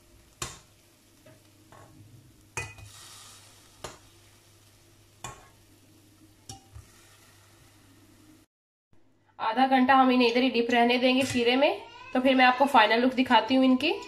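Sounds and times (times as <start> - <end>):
short hiss of frying: 2.6 - 5.6, 6.5 - 7.9.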